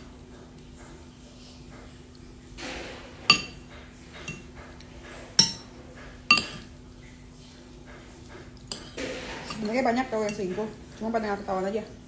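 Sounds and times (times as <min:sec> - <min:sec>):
spoon clinking on plate: 0:03.3 - 0:03.6, 0:06.3 - 0:06.7.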